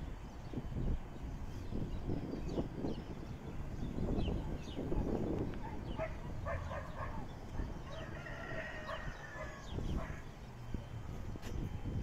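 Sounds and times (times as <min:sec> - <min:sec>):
rooster crowing: 0:07.8 - 0:09.7.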